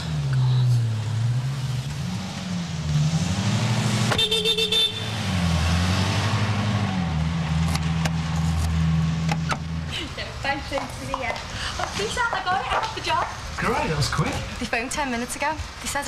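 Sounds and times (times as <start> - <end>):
car horn toots: 4.1 - 5.2.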